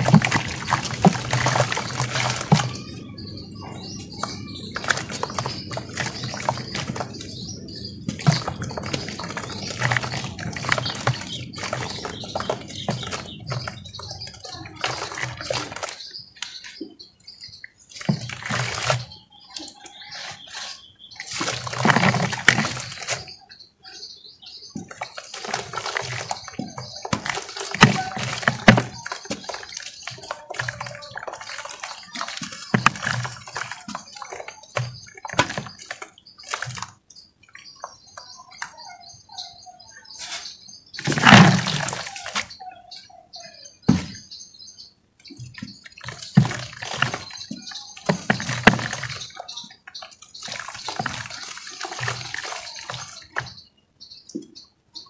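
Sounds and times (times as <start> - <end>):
dirt powder pouring into water: 50.3 - 53.4.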